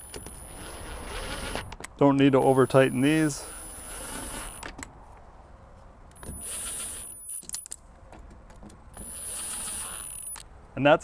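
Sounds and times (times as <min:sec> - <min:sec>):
cordless driver whining: 0:00.0 - 0:01.8, 0:03.4 - 0:04.8, 0:09.0 - 0:10.4
clicks of tool and screws: 0:06.1 - 0:10.4.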